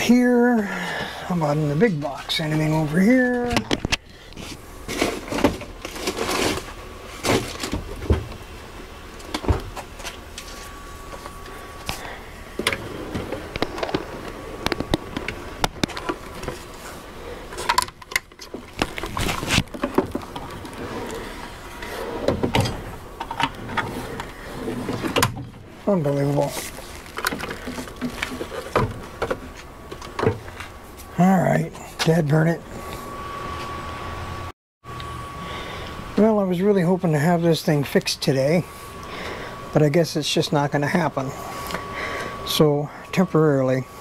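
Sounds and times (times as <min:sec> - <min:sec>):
rummaging through clutter: 0:00.0 - 0:08.4, 0:09.2 - 0:32.4.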